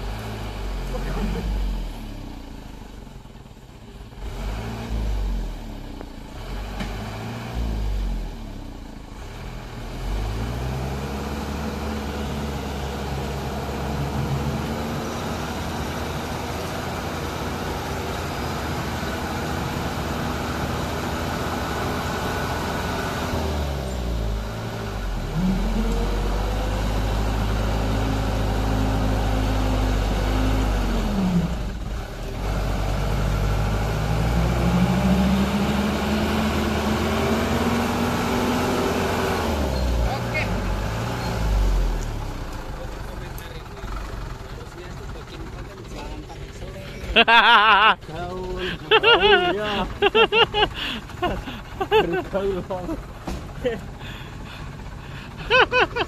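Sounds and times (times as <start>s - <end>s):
diesel truck engine revving: 0.0s - 56.0s.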